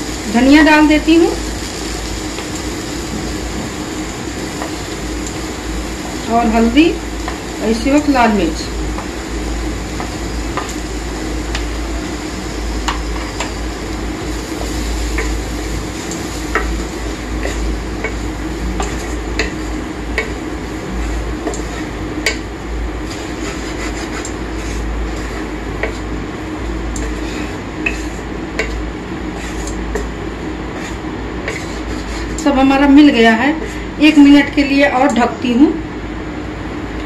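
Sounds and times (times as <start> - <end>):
steady low hum: 0.0 - 37.0
wooden spatula scraping pan: 23.0 - 26.1, 27.0 - 33.9.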